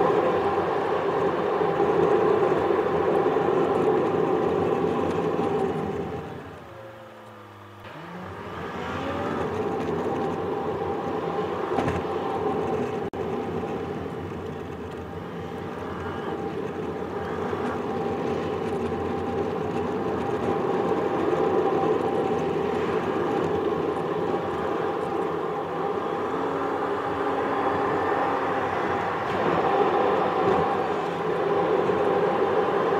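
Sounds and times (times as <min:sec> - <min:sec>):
car engine and tyre rumble: 0:00.0 - 0:32.9.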